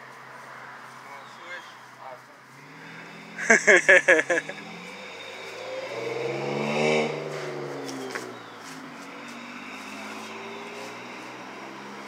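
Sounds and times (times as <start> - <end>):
car driving past: 2.5 - 12.0
faint engine hum: 7.0 - 12.0.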